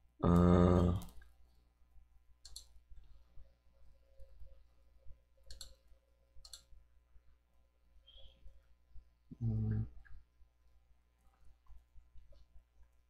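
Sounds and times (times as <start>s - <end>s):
faint computer mouse clicks: 2.4s - 3.1s, 5.5s - 6.7s.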